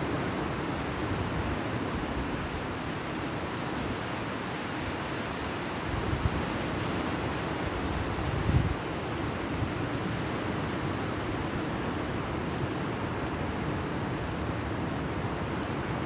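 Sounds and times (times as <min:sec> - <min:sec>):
sea surf on beach: 0:00.0 - 0:16.0
wind rumbling on microphone: 0:07.6 - 0:09.8.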